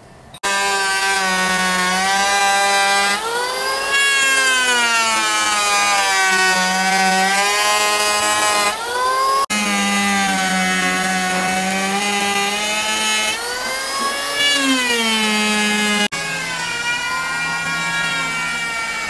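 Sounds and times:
electric planer motor whine: 0.4 - 19.0.

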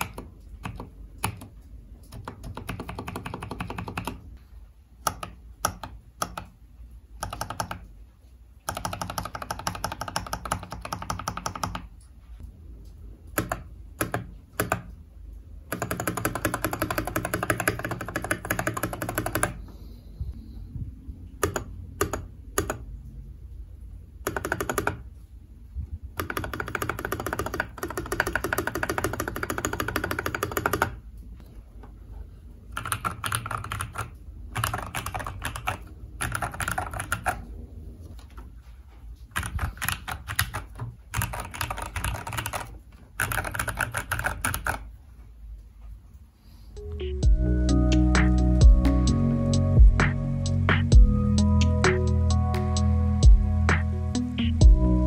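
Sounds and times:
mechanical keyboard typing: 0.0 - 4.4, 5.0 - 6.6, 7.2 - 8.0, 8.6 - 12.1, 13.2 - 15.0, 15.6 - 19.6, 21.4 - 22.9, 24.2 - 25.1, 26.1 - 31.0, 32.7 - 37.4, 39.3 - 44.9.

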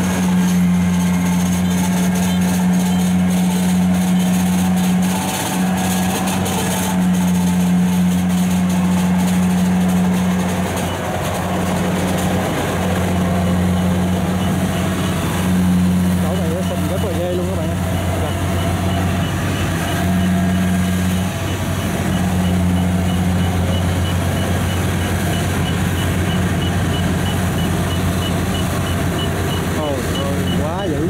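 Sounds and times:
diesel engine droning: 0.0 - 31.0.

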